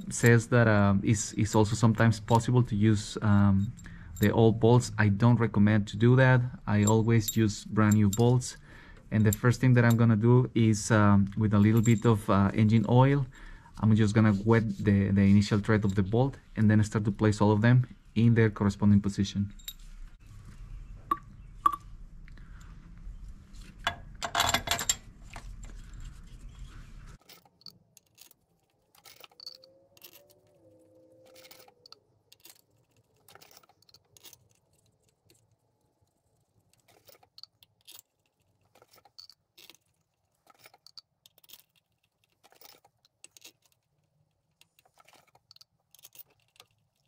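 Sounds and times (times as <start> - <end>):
metal bolts clinking: 6.7 - 8.6, 23.8 - 25.8, 27.2 - 35.6, 36.3 - 47.0.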